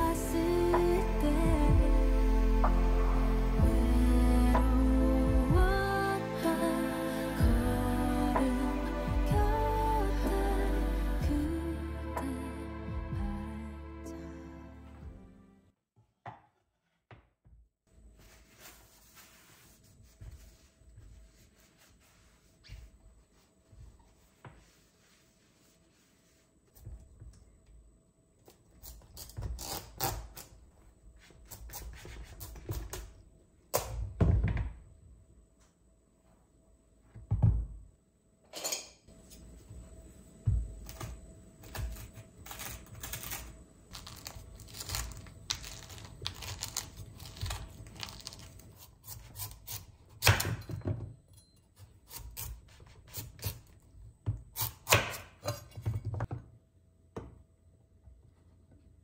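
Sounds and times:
faint steady hum: 18.0 - 59.0
rustling and scraping: 18.1 - 27.2
objects knocking and thudding: 37.1 - 37.8, 55.7 - 56.5.

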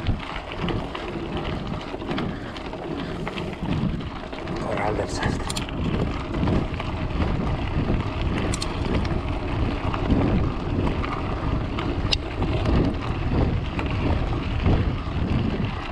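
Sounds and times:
vehicle driving over rough ground: 0.0 - 15.9
wind buffeting microphone: 0.0 - 15.9
sharp clicks: 8.5 - 8.8.

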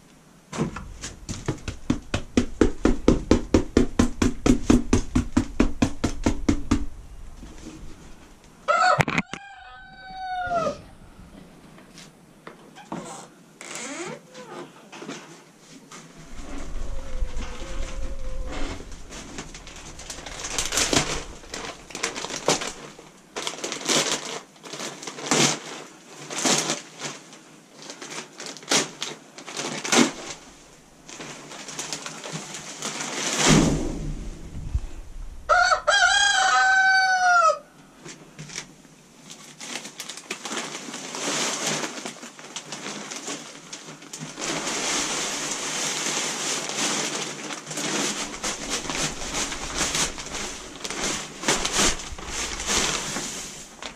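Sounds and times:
dry bedding rustling: 0.6 - 8.4, 16.0 - 27.2, 27.8 - 36.7, 39.6 - 53.9
rooster crowing: 8.7 - 11.0, 16.4 - 19.2, 35.5 - 37.7
wood shavings hissing from bag: 16.2 - 33.8, 39.6 - 53.9.

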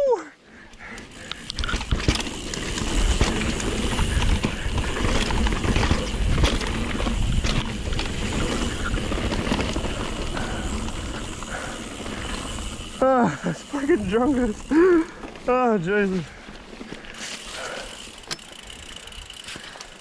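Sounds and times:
bike chain and frame rattling: 0.6 - 20.0
tyres rolling over dirt: 1.2 - 20.0
wind rumbling on microphone: 2.9 - 11.5.

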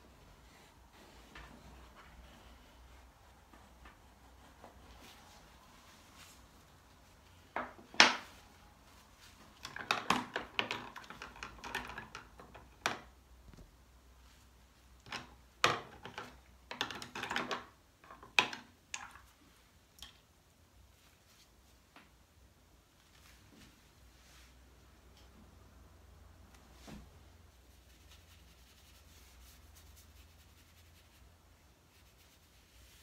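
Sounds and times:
scratchy rubbing on paper: 27.5 - 33.0.

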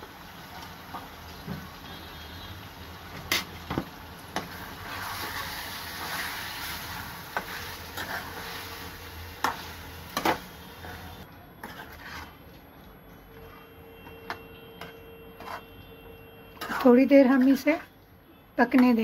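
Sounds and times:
food sizzling: 0.0 - 12.0.

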